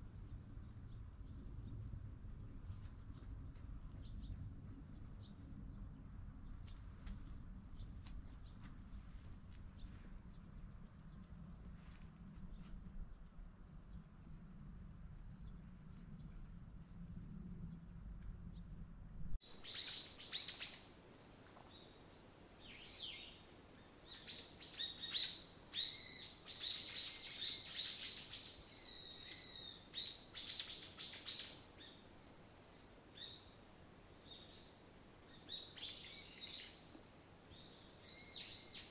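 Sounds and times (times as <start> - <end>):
low hum: 0.0 - 19.7.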